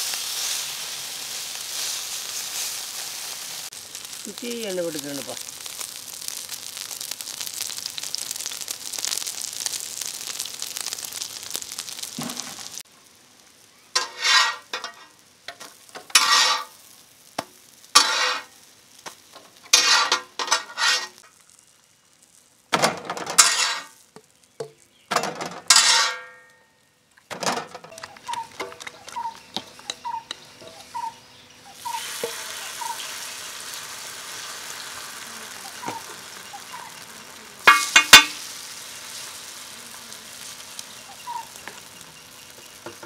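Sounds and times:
omelettes sizzling in oil: 0:00.0 - 0:43.0
metal spatula scraping griddle: 0:14.0 - 0:15.2, 0:16.0 - 0:16.8, 0:17.9 - 0:18.5, 0:19.6 - 0:21.2, 0:23.0 - 0:24.0, 0:25.3 - 0:26.4.

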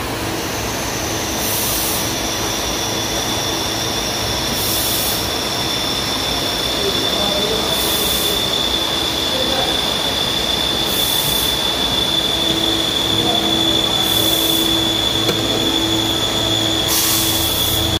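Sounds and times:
high-pitched machine whine: 0:00.0 - 0:18.0
mechanical drone: 0:00.0 - 0:18.0
low hum: 0:12.2 - 0:16.9
short bursts of hiss: 0:16.8 - 0:17.5.

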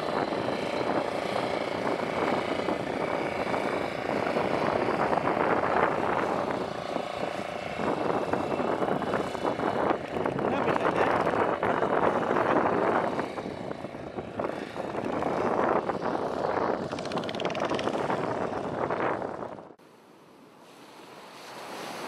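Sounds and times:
wind buffeting microphone: 0:00.0 - 0:19.8
sea noise: 0:00.0 - 0:22.0.

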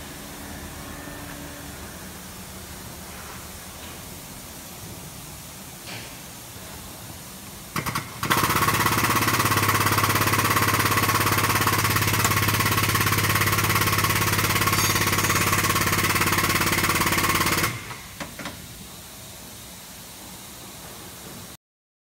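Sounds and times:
hydraulic pump running: 0:07.7 - 0:18.6.

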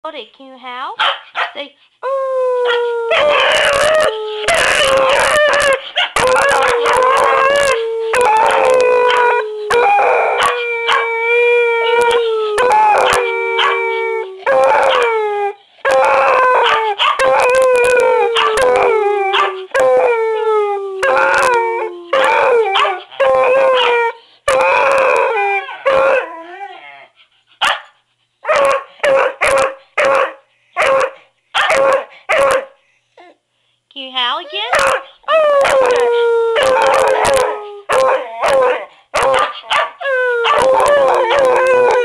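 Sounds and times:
dog barking: 0:01.0 - 0:01.6, 0:27.6 - 0:27.9, 0:28.5 - 0:32.8, 0:34.7 - 0:35.1, 0:37.9 - 0:40.6
dog howling: 0:02.0 - 0:27.1, 0:34.6 - 0:42.0
dog yelping: 0:28.5 - 0:32.7, 0:36.6 - 0:42.0.

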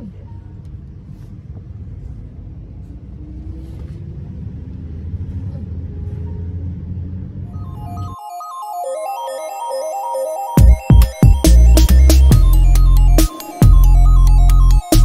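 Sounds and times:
bus engine drone: 0:00.0 - 0:08.2.

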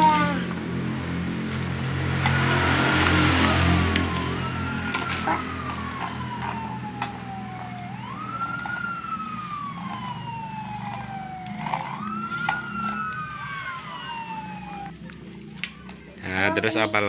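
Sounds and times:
fire engine siren wailing: 0:00.0 - 0:16.8
second siren: 0:02.0 - 0:15.0.

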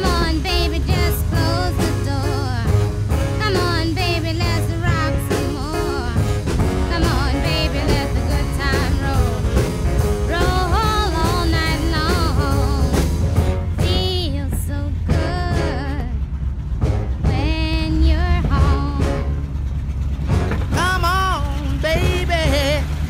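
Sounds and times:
person singing: 0:00.0 - 0:02.7, 0:03.4 - 0:06.2, 0:06.8 - 0:13.2, 0:13.8 - 0:16.2, 0:20.8 - 0:23.0
steady bass line: 0:00.0 - 0:23.0.

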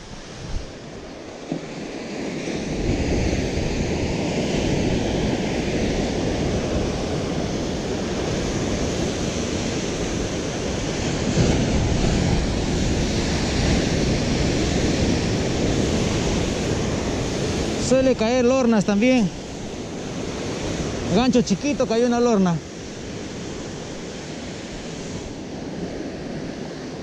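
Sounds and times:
wind buffeting microphone: 0:00.0 - 0:01.2, 0:02.5 - 0:22.0.

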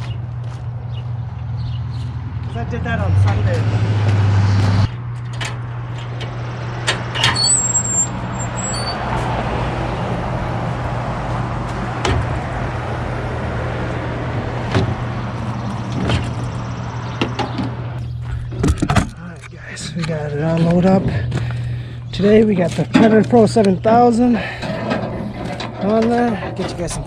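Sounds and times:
vehicle engine idling: 0:10.0 - 0:27.0
equipment knocking and clattering: 0:24.6 - 0:27.0.

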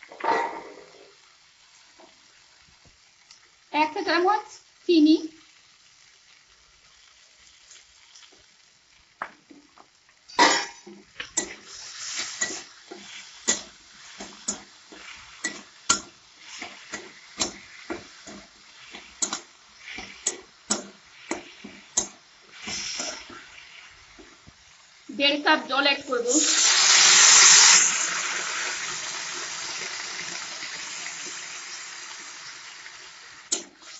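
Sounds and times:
vegetables sizzling: 0:00.0 - 0:33.9
spatula scraping metal pan: 0:10.8 - 0:24.3.

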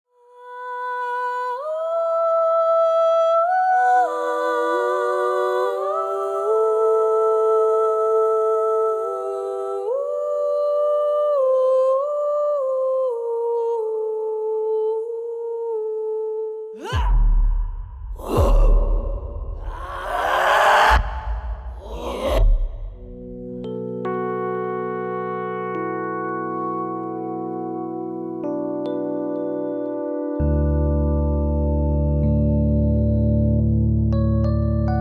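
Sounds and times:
breathy airy layer: 0:16.8 - 0:23.6.

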